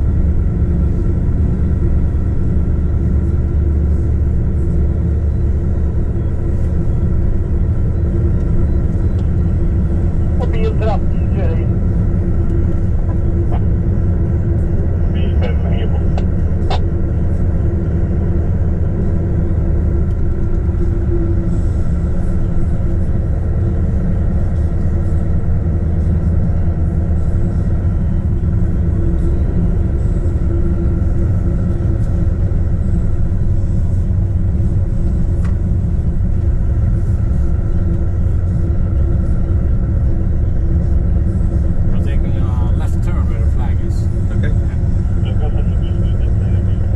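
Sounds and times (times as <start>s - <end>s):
truck engine drone and road rumble: 0.0s - 46.9s.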